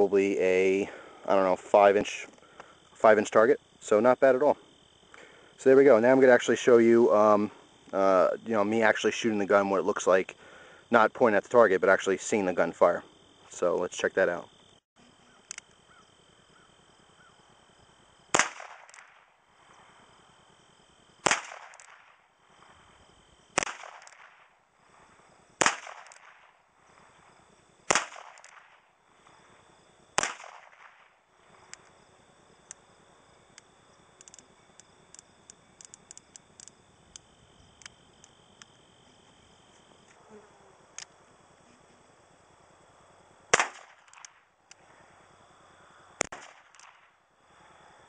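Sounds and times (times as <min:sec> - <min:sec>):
faint small clicks: 0:15.4 - 0:16.1, 0:31.7 - 0:31.9, 0:33.5 - 0:38.7
revolver gunshots: 0:18.3 - 0:19.3, 0:21.2 - 0:22.3, 0:23.6 - 0:24.5, 0:25.6 - 0:26.6, 0:27.9 - 0:28.9, 0:30.2 - 0:31.2, 0:43.5 - 0:44.4, 0:46.2 - 0:47.1.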